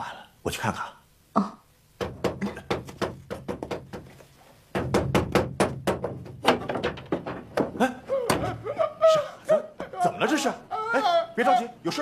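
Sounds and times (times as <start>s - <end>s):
knocking on wooden door: 2.0s - 8.6s.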